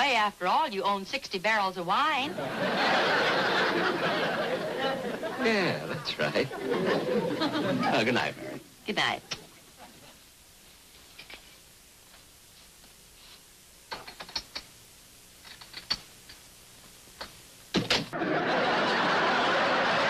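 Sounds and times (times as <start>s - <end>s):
audience laughing and applauding: 2.3s - 8.6s, 18.2s - 20.0s
small clicks and knocks: 13.9s - 14.7s, 15.4s - 16.4s.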